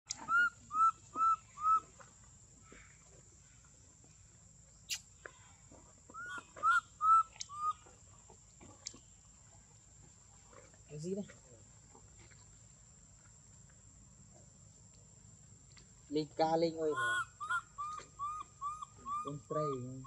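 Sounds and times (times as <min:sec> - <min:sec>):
baby monkey coo calls: 0:00.2 - 0:01.8, 0:06.1 - 0:07.8, 0:16.8 - 0:20.0.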